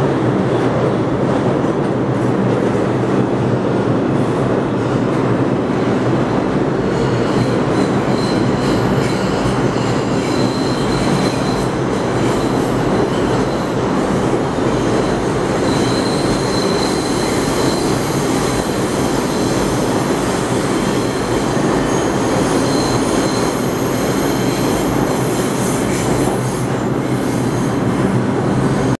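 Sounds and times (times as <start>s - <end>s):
subway train wheels rumbling: 0.0s - 29.0s
high-pitched wheel squeal: 6.9s - 13.7s, 14.8s - 18.4s, 21.0s - 24.8s.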